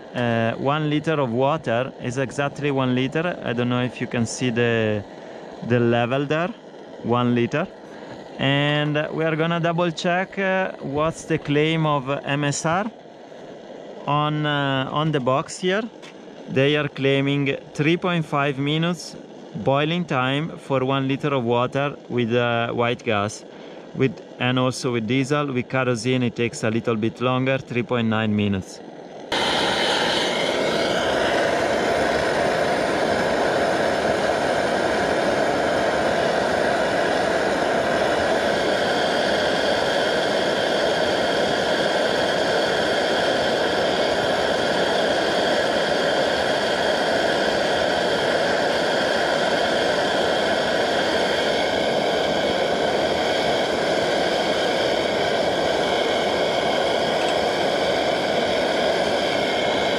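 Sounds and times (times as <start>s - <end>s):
stove burner rushing: 0.0s - 59.9s.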